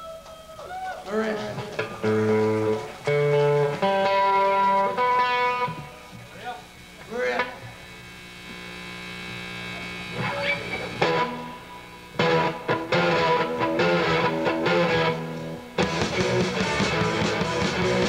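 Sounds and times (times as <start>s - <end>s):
amplifier mains hum: 0.0s - 18.0s
rock band playing loud: 1.4s - 5.9s, 11.0s - 11.6s, 12.2s - 18.0s
electric guitar chord ringing: 1.4s - 6.5s, 8.4s - 18.0s.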